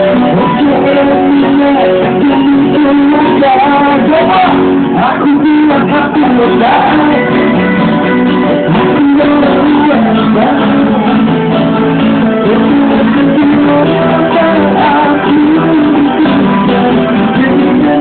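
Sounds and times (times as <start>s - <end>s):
person singing: 0.0s - 18.0s
strummed acoustic guitars: 0.0s - 18.0s.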